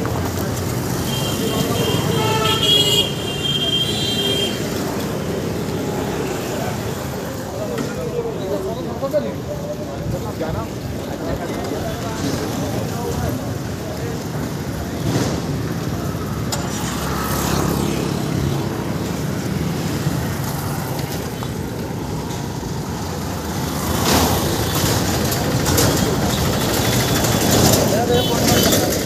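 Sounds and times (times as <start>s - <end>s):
road traffic passing: 0.0s - 29.0s
louder vehicle passing: 13.7s - 29.0s.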